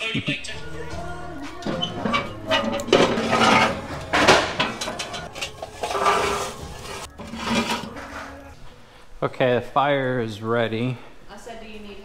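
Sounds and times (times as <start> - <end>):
coals clattering: 0.1 - 8.8
metal clanking: 0.4 - 8.6
grill lid opening: 0.8 - 8.4.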